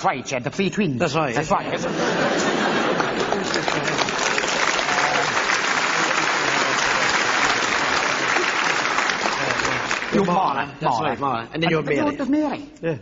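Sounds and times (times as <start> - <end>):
audience applauding: 2.2 - 10.6.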